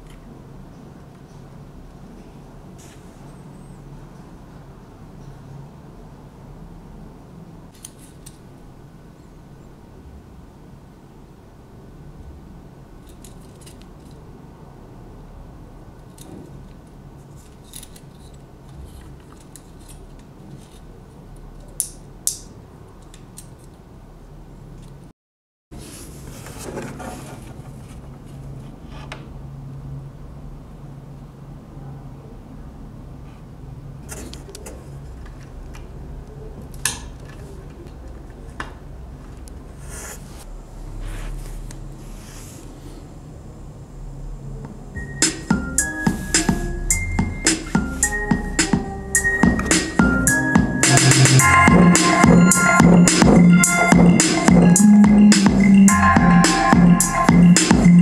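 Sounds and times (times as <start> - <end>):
steady low hum: 40.4 - 58.0.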